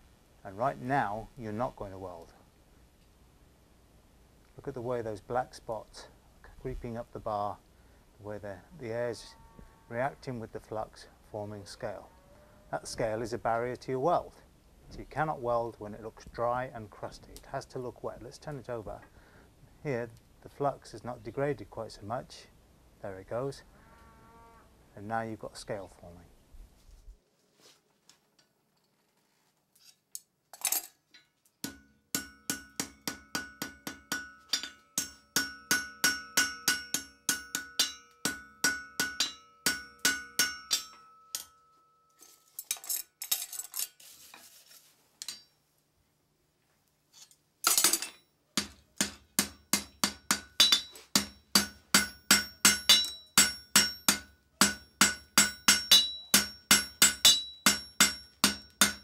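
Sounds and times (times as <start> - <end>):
hammer striking steel on anvil: 31.6 - 41.9, 47.7 - 59.0.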